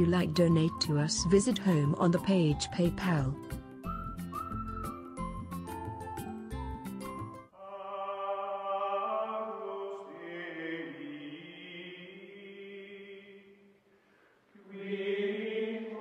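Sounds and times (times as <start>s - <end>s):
wordless choral chords: 7.5s - 13.8s, 14.5s - 16.0s.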